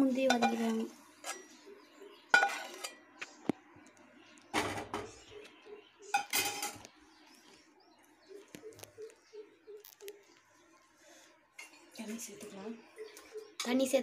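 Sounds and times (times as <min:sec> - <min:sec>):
metal utensils clattering on pots: 0:00.0 - 0:01.6, 0:02.3 - 0:03.1, 0:04.5 - 0:05.2, 0:06.1 - 0:06.9.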